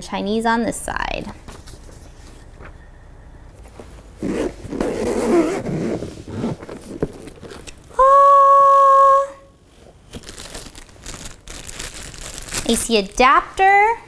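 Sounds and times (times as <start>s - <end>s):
zipper pulled open: 4.2s - 7.8s
case lid rustling: 4.2s - 7.9s
person holding an ooh note: 7.9s - 9.5s.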